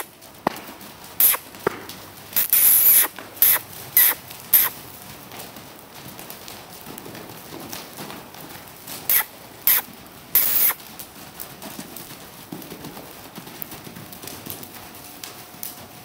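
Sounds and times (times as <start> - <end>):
hooves thudding on dirt: 0.0 - 16.0
loud hissing bursts: 1.2 - 1.4, 2.4 - 4.8, 9.1 - 10.8.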